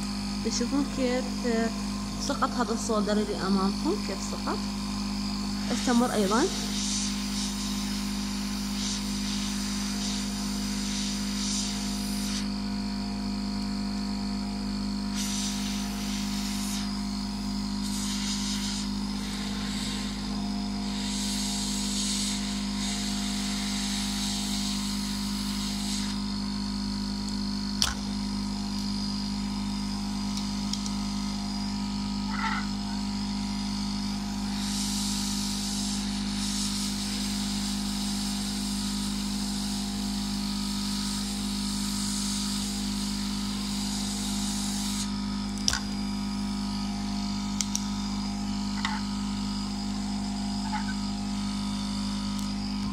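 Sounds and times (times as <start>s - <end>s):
fan hum: 0.0s - 10.3s, 27.2s - 36.7s, 44.9s - 52.9s
hot air hissing: 5.5s - 12.5s, 15.1s - 26.4s, 34.3s - 45.2s.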